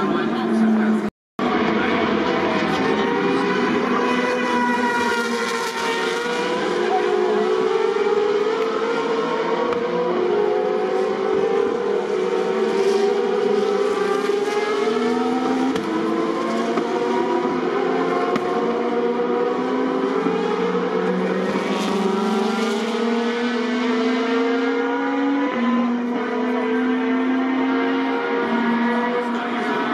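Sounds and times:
racing cars accelerating hard: 0:00.0 - 0:29.9.

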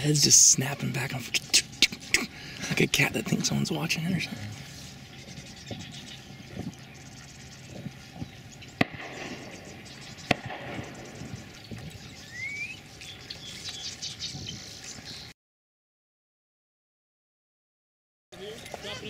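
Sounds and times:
shotgun shots: 0:08.8 - 0:11.4.

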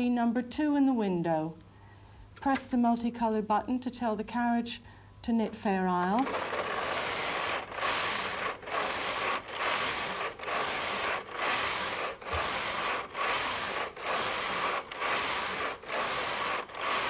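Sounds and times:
knitting machine carriage sliding: 0:06.0 - 0:17.0.

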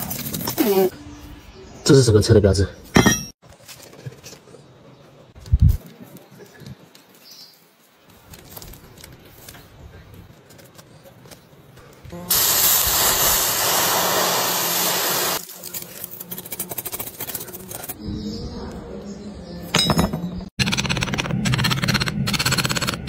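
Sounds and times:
water hissing into steam: 0:12.3 - 0:15.4.

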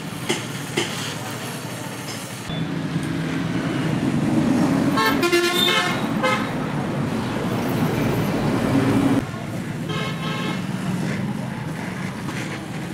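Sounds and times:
motor vehicle rumbling: 0:00.0 - 0:12.9
horn tooting: 0:05.0 - 0:06.6.

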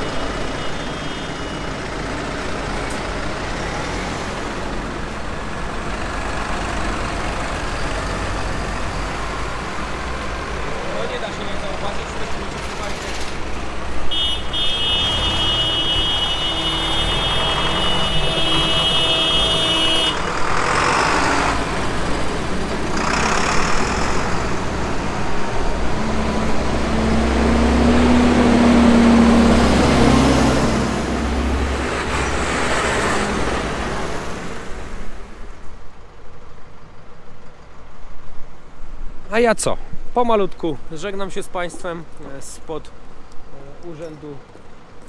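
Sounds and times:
tractor diesel engines rumbling: 0:00.0 - 0:45.0
tyres hissing on wet road: 0:00.2 - 0:25.9.

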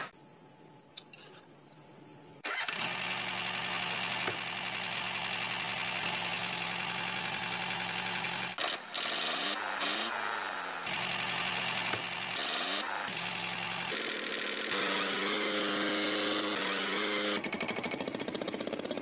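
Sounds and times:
motor running: 0:02.5 - 0:19.0.

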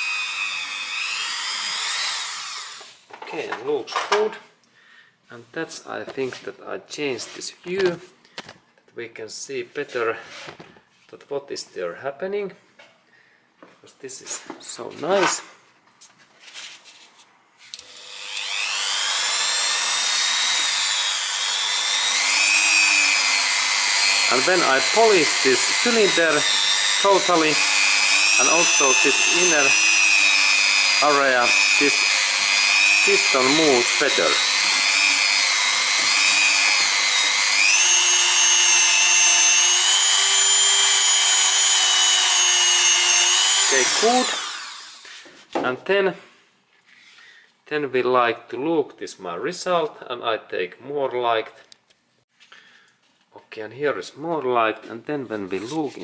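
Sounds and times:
rotary tool whining: 0:00.0 - 0:03.0, 0:17.7 - 0:45.3.

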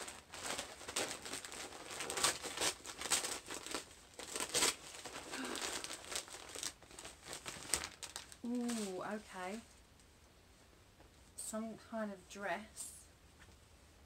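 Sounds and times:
wrapping paper crinkling and tearing: 0:00.0 - 0:09.7.

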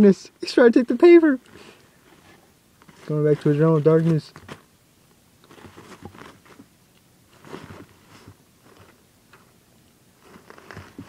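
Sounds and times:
paper rustling and scuffling: 0:02.0 - 0:04.7, 0:05.4 - 0:06.7, 0:07.3 - 0:09.0, 0:10.2 - 0:11.0.

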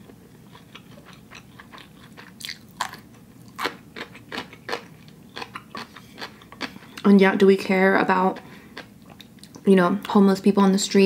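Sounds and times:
person chewing noodles: 0:00.0 - 0:07.1.

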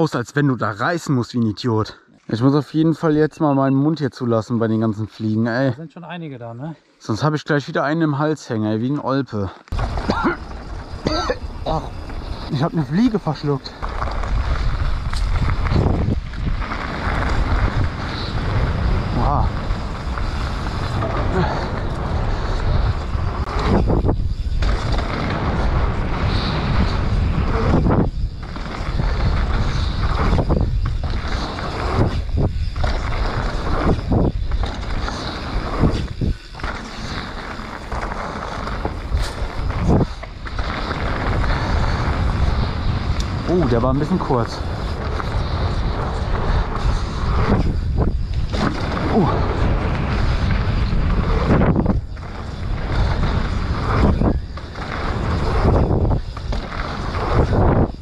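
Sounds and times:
bike tyre and trail noise: 0:00.0 - 0:58.0
wind rushing over microphone: 0:09.7 - 0:58.0.

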